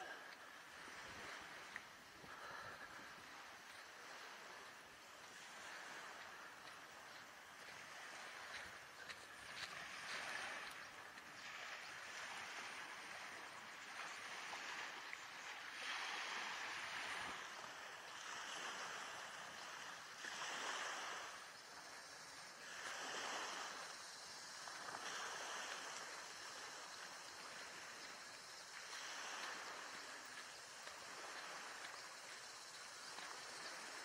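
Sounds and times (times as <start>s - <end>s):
small waves washing on beach: 0.0s - 34.0s.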